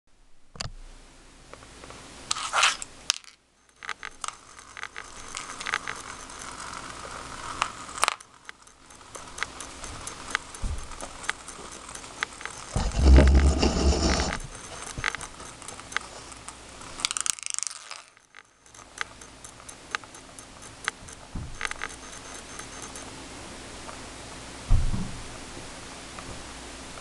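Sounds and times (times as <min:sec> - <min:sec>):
spinning tops clicking and rattling: 0:02.3 - 0:23.2.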